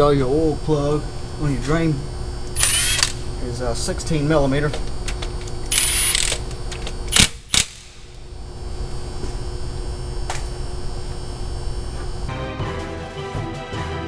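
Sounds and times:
power ratchet whirring: 2.4 - 3.3, 4.8 - 8.2.

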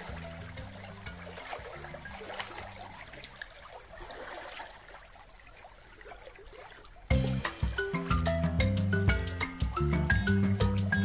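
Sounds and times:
water lapping against rocks: 0.0 - 8.2.

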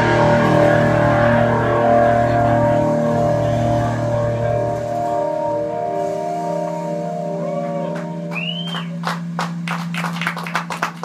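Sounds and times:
guitar and keyboard chord: 0.0 - 9.6
audience whistle: 7.4 - 11.0
applause: 7.9 - 11.0.

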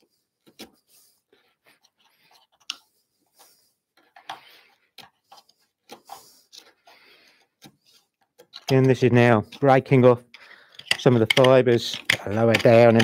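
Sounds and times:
wood fibres clicking: 5.0 - 13.0
chisel scraping wood: 10.7 - 13.0.

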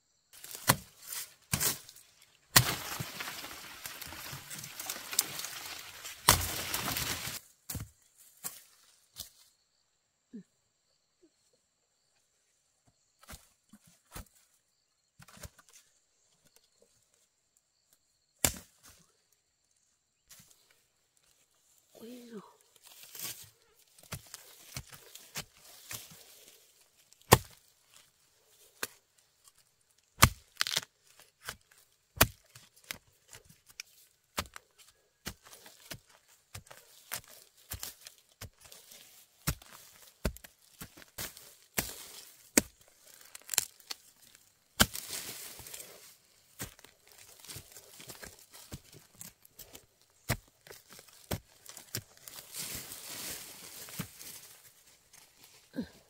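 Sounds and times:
rustling: 0.4 - 7.4.

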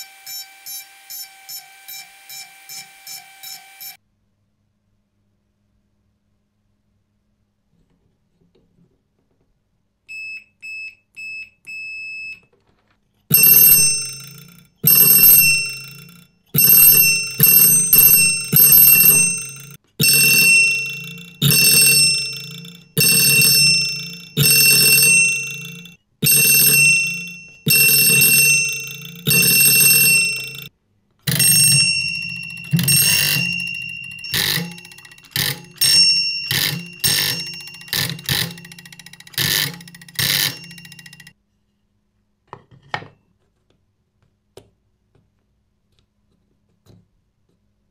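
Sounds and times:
electric doorbell ringing: 13.3 - 30.7, 31.3 - 41.4.

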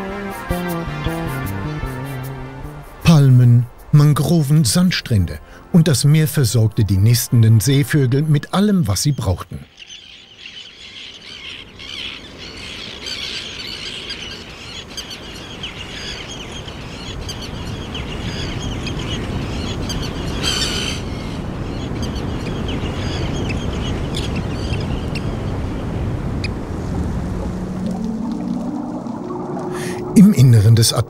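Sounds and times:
seabird colony calling: 9.6 - 30.7
steady rushing noise: 23.5 - 30.8.

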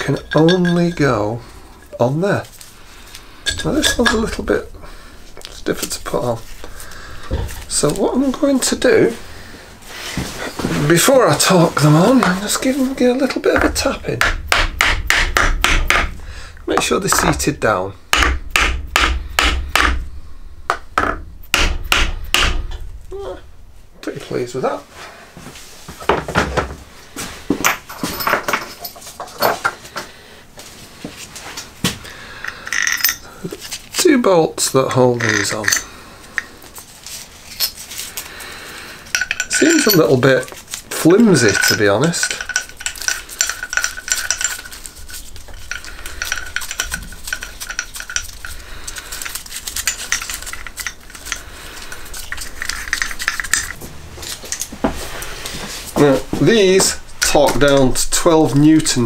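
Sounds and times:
metal bolts clicking and rattling: 0.0 - 2.7, 3.4 - 9.2, 32.4 - 33.3, 35.1 - 36.5, 39.1 - 54.7, 56.5 - 59.0.

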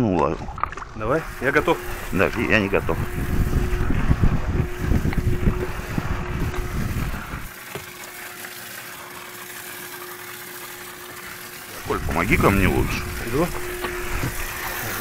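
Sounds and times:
low rumbling noise: 0.4 - 7.5, 11.8 - 15.0
small motor humming: 1.0 - 15.0.

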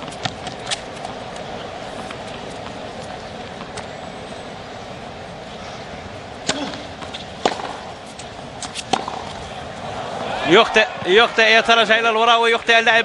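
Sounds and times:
tennis ball hit by racket: 0.0 - 1.4, 6.4 - 10.4
stadium crowd hush: 9.2 - 12.1.

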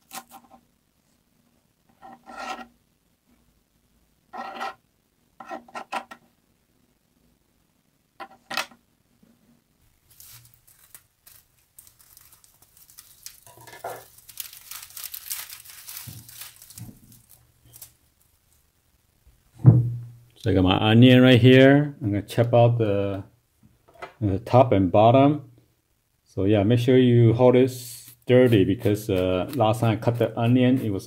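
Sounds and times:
plastic crinkling and rustling: 10.0 - 18.6.

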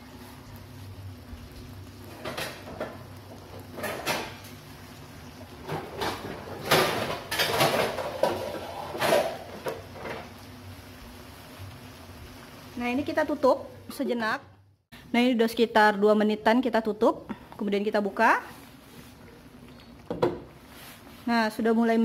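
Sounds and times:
kitchen cookware knocks and rattles: 3.7 - 4.4, 5.6 - 10.2.

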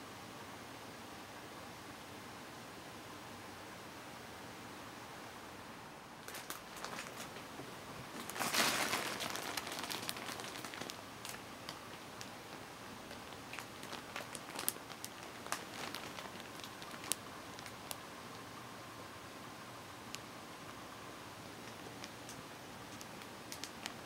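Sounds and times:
plastic bag crinkling: 6.2 - 7.4, 8.0 - 12.3, 13.0 - 18.0, 21.6 - 24.0.

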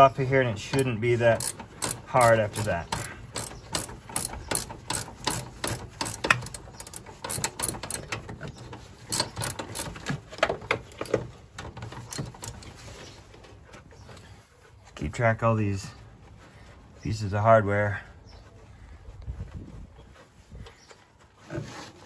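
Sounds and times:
socket ratchet clicking: 1.4 - 8.2, 9.1 - 10.2.

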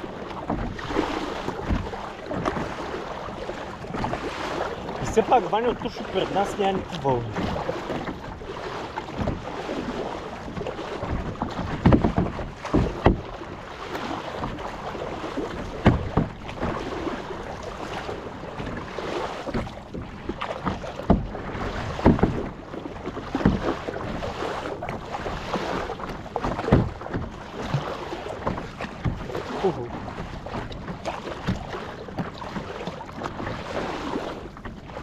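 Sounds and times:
paddles splashing in water: 0.0 - 35.0
wind: 0.0 - 35.0.

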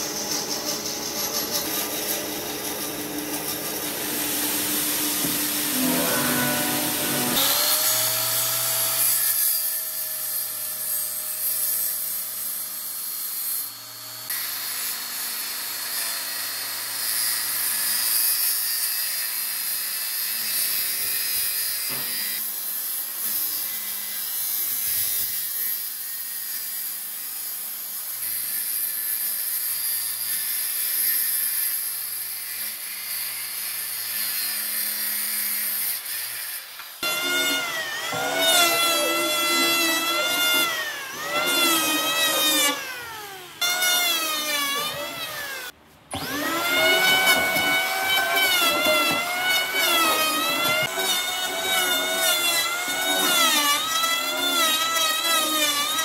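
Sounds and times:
workshop machine noise: 0.0 - 16.0, 33.2 - 56.0
circular saw cutting wood: 0.0 - 56.0.

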